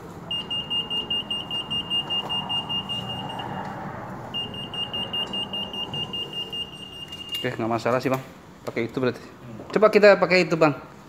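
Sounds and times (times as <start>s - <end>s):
rapid high-pitched alarm beeps: 0.3s - 3.6s, 4.3s - 7.6s.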